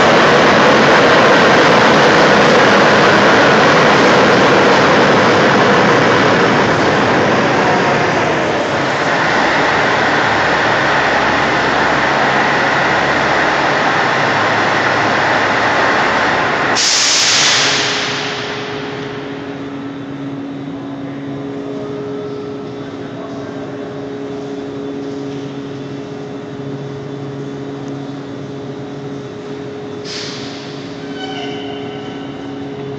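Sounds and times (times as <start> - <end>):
rail vehicle engine and wheels: 0.0 - 32.9
sharp hiss of air: 16.7 - 19.0, 30.0 - 30.9.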